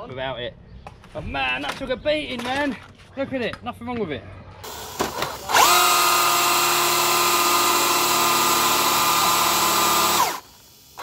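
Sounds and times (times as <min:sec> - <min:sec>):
electric motor high whine: 0:04.7 - 0:11.0.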